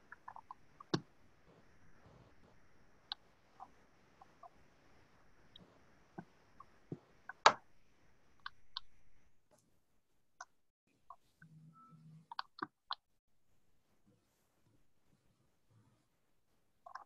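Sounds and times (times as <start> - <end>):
mouse and keyboard clicks: 12.3 - 13.0.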